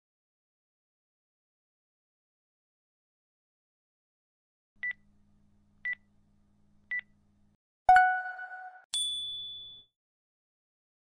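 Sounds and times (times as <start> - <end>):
high ringing tone: 7.9 - 9.9.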